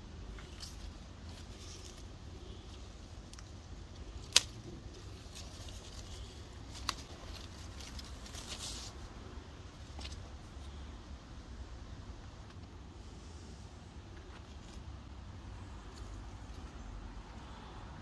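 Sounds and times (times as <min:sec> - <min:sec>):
leaves rustling: 0:00.0 - 0:11.7
steady low rumble: 0:00.0 - 0:18.0
sharp twig clicks: 0:04.2 - 0:05.0.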